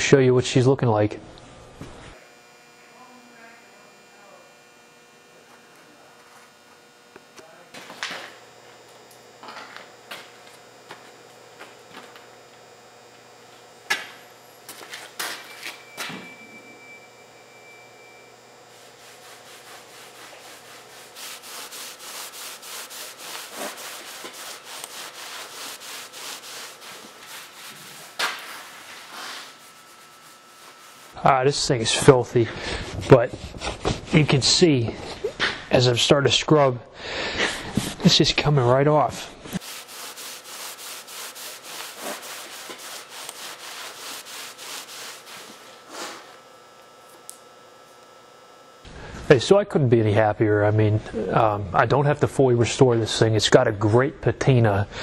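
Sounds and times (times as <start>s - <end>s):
cloth rag scrubbing wood: 18.7s - 35.2s, 39.2s - 46.4s.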